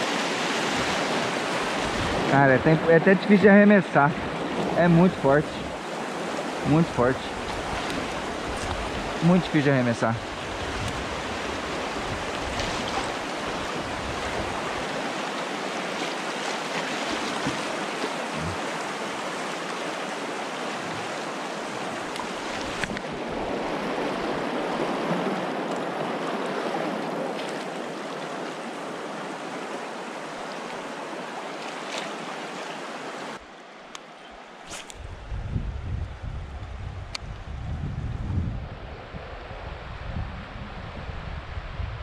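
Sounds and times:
water rushing through rapids: 0.0 - 33.4.

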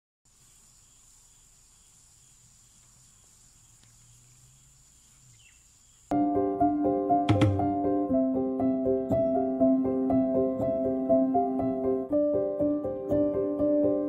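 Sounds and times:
insects droning: 0.3 - 6.2
piano music: 6.1 - 14.0.

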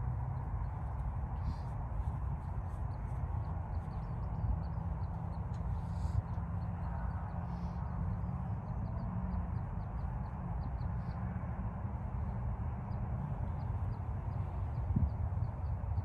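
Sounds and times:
small birds chirping: 0.4 - 11.2
wind buffeting microphone: 12.1 - 16.0.

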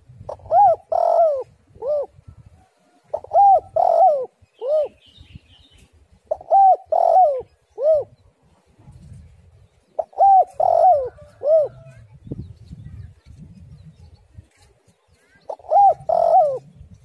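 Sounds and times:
dove cooing: 0.2 - 5.0, 6.3 - 8.3, 10.0 - 12.0, 15.5 - 16.8.

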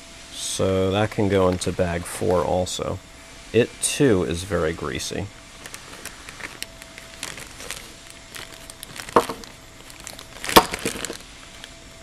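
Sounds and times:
rustling of plastic bag: 5.6 - 11.8.

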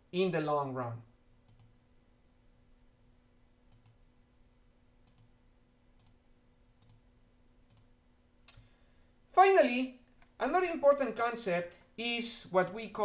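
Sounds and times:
low steady hum: 0.0 - 13.0
faint computer clicks: 1.4 - 1.8, 3.7 - 4.0, 5.0 - 5.3, 6.8 - 7.0, 7.7 - 7.9.

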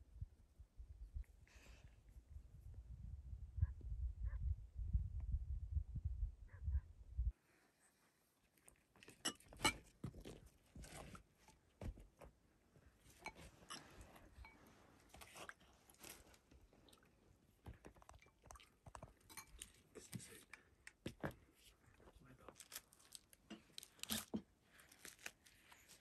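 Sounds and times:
flatbread tearing and crackling: 22.6 - 26.0.

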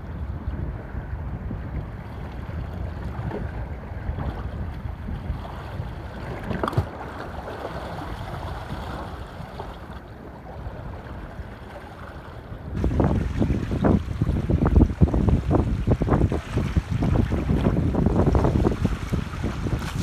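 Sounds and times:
waves lapping and splashing: 0.0 - 20.0
wind rumbling on microphone: 0.0 - 20.0.

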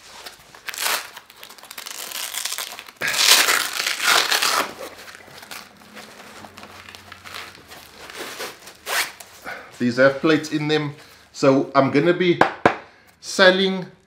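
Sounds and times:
fabric rustling and scraping: 1.8 - 11.3.

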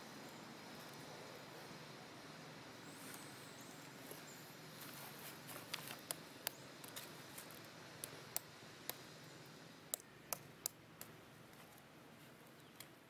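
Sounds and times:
sharp irregular clicks: 5.7 - 9.1, 9.9 - 11.2.

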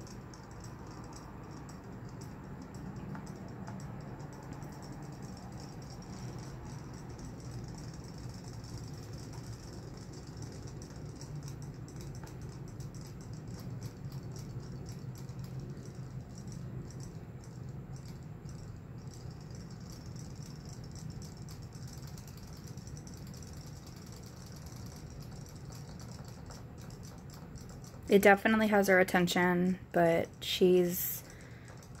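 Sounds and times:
low hum: 0.0 - 32.0
toy motors buzzing rattle: 0.0 - 32.0.

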